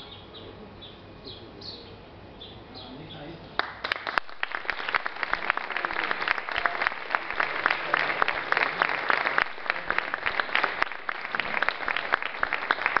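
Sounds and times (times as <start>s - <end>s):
audience applauding: 3.6s - 13.0s.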